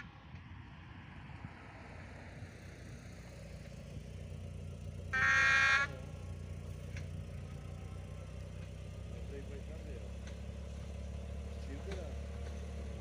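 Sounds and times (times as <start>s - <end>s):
train engine rumbling: 0.0s - 13.0s
train horn blast: 5.1s - 6.0s.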